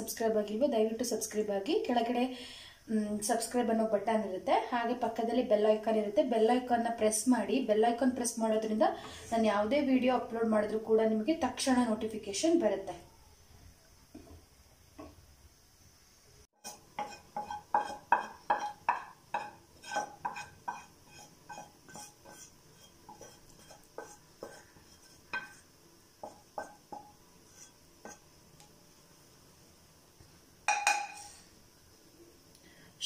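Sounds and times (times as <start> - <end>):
wooden spatula tapping metal pan: 16.6 - 28.8, 30.7 - 31.3.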